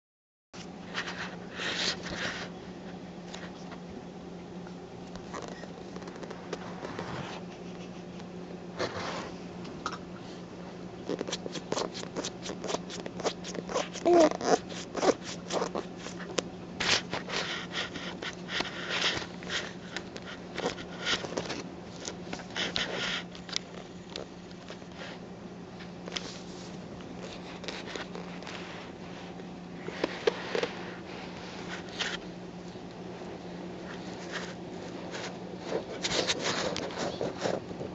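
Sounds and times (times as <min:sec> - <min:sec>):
baby crinkling paperback book: 0:11.1 - 0:24.9, 0:26.1 - 0:29.0
baby vocal sound: 0:13.7 - 0:15.9.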